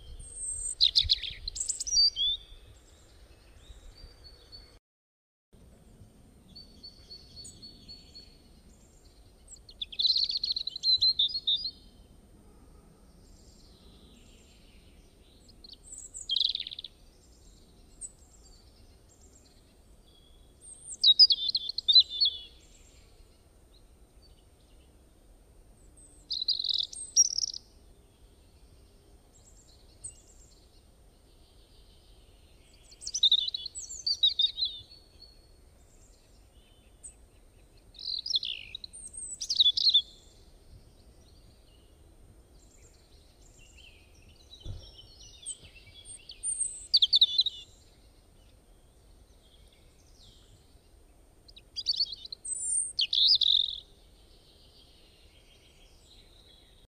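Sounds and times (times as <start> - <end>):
bird chirping: 0.0 - 4.8, 6.5 - 12.1, 13.1 - 25.1, 25.8 - 56.9.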